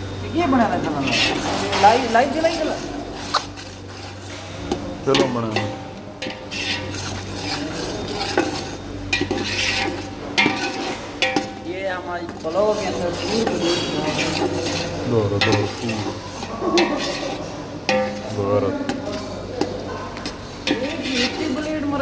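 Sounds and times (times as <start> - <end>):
metal spoon scraping pot: 0.9 - 22.0
onions sizzling in oil: 5.0 - 19.1, 20.3 - 22.0
spoon knocking against pot: 10.4 - 11.7.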